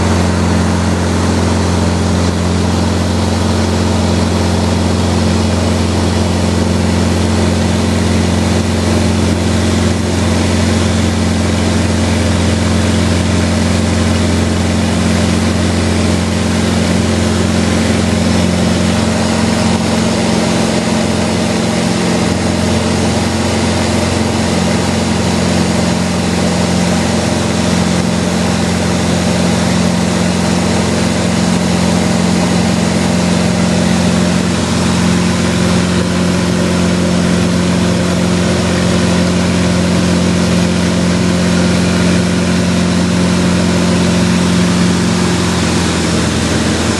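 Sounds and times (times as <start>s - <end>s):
light aircraft engine drone: 0.0s - 46.9s.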